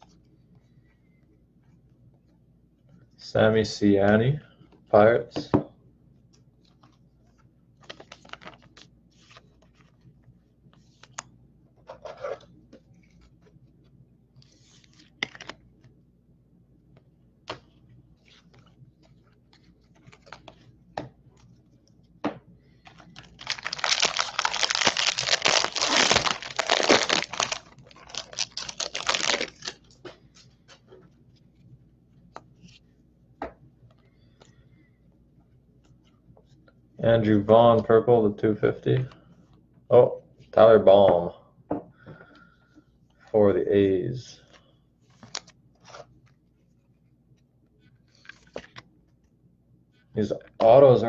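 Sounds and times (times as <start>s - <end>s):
foil wrapper tearing and crinkling: 23.2s - 29.8s.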